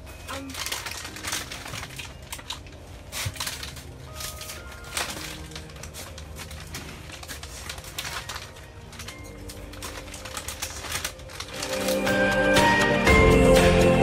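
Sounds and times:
plastic chip bag crinkling: 0.0s - 13.1s
quiet background music: 0.0s - 14.0s
chips being crunched: 0.3s - 13.0s.

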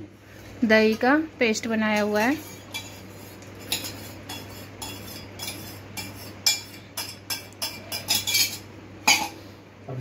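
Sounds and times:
steel tumbler clinking on metal: 3.7s - 9.3s.

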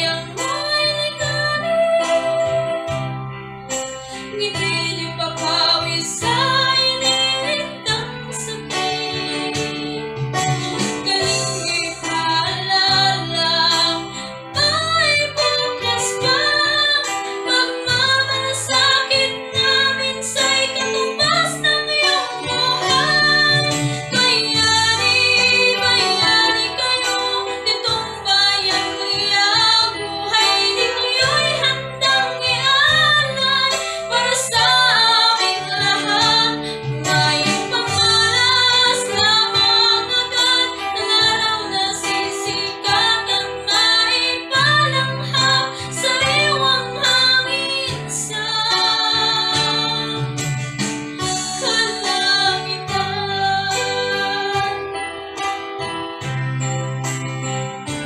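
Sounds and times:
woman singing a ballad: 0.0s - 55.6s
electronic keyboard: 0.0s - 58.0s.

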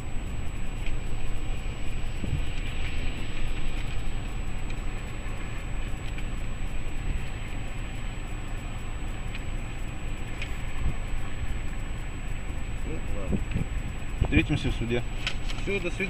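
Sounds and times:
faint ticks: 0.0s - 16.0s
idling engine and traffic rumble: 0.0s - 16.0s.

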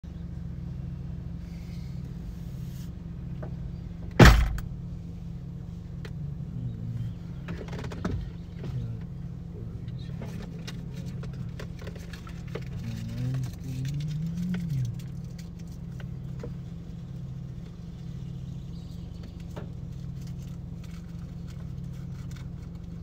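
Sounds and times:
low motor hum: 0.0s - 23.0s
sharp loud knock: 4.2s - 4.6s.

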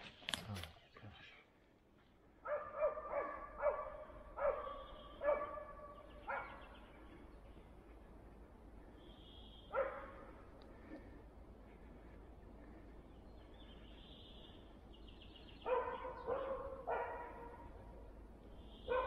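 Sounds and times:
dog barking: 2.4s - 6.8s, 9.7s - 10.3s, 15.6s - 18.0s.

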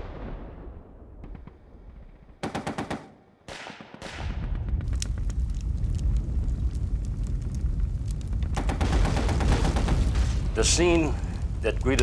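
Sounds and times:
low battle rumble: 4.0s - 12.0s
machine-gun fire: 8.6s - 10.4s.

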